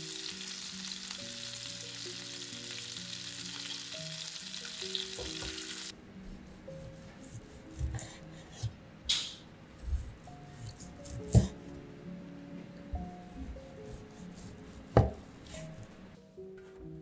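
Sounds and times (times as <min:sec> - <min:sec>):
chicken sizzling in pan: 0:00.0 - 0:05.9.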